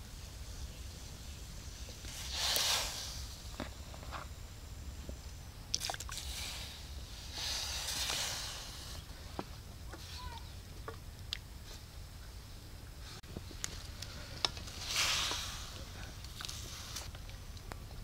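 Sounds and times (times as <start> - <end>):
water hissing in hot wok: 0.0 - 9.4, 14.1 - 17.2.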